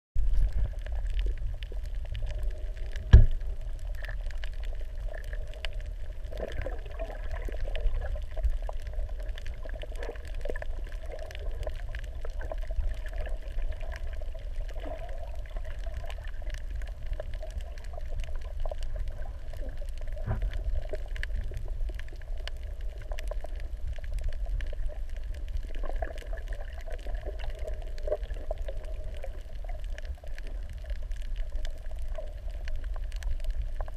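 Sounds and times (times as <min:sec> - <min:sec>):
faint clicks underwater: 0:00.2 - 0:33.9
underwater low rumble: 0:00.2 - 0:33.9
loud thump: 0:03.1 - 0:03.3.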